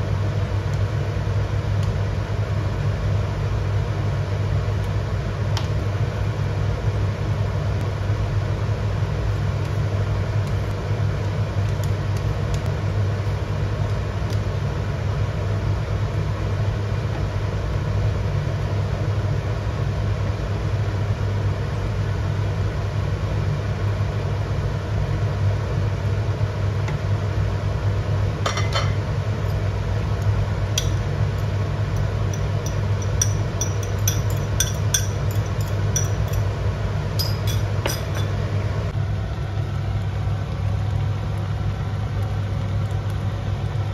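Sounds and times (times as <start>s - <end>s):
extractor fan hum: 0.0s - 43.9s
utensil clinking on pan: 32.0s - 36.5s, 37.2s - 38.4s.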